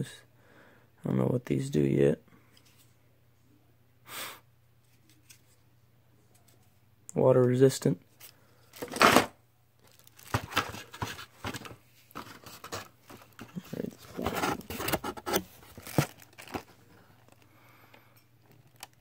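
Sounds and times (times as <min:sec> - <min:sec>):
cardboard box being handled: 0:10.2 - 0:17.4
rustling scraping and clicks: 0:10.2 - 0:17.4.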